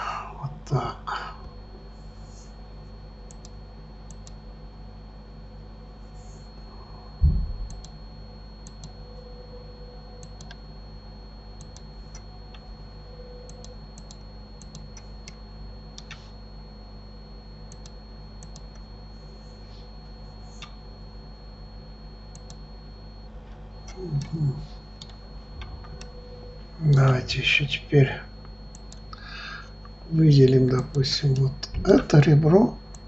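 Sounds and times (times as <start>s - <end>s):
low hum: 0.0s - 33.0s
loud thump: 7.2s - 7.7s.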